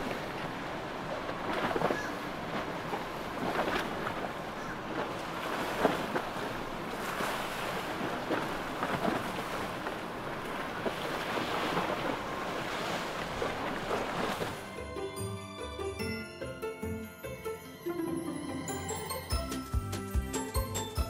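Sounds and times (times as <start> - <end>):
water rushing and splashing: 0.0 - 15.4.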